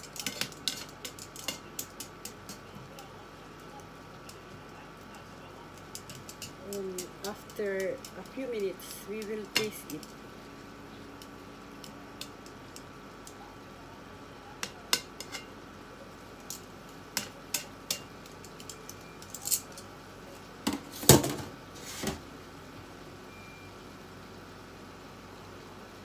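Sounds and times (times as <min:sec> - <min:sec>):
metal tongs clinking on frying pan: 0:00.0 - 0:02.7, 0:05.8 - 0:10.2, 0:14.6 - 0:15.5, 0:16.4 - 0:19.9.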